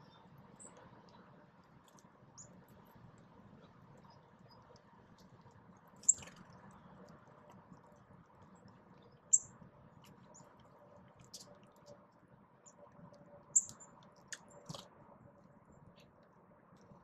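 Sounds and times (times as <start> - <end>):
birds pecking at seed: 0.0 - 17.0
low background hum: 0.0 - 17.0
bird chip calls: 6.0 - 6.9, 13.5 - 14.0.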